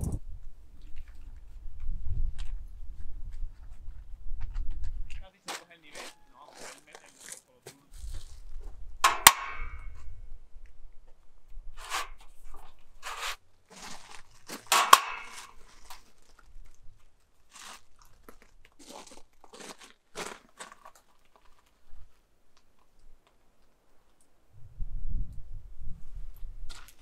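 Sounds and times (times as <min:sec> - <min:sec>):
crunching and rustling handling: 0:02.4 - 0:08.9, 0:11.9 - 0:24.2
sharp metallic clicks: 0:09.0 - 0:09.9, 0:14.7 - 0:15.4.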